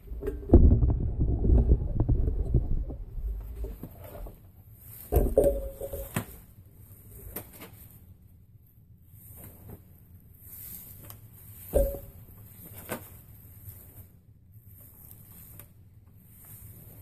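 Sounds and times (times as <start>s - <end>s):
strands rustling and brushing: 3.3s - 8.3s, 9.1s - 17.0s.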